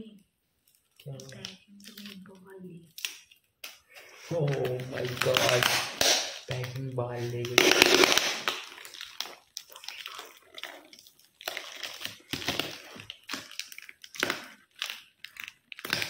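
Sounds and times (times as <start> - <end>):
packaging crinkling and tearing: 0.6 - 16.0.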